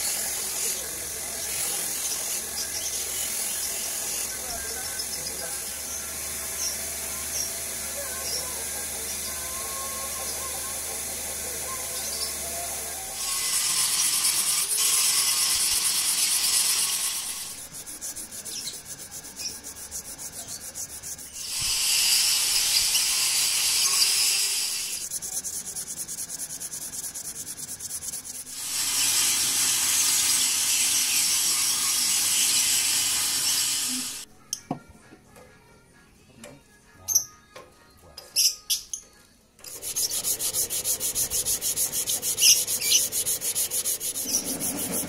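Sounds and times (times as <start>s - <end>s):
sandpaper sanding wood: 0.0s - 4.7s, 13.0s - 34.3s, 39.6s - 45.0s.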